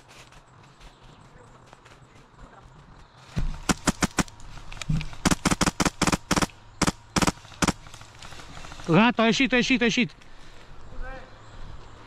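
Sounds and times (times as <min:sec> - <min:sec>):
airsoft gun shots: 0:03.4 - 0:08.1.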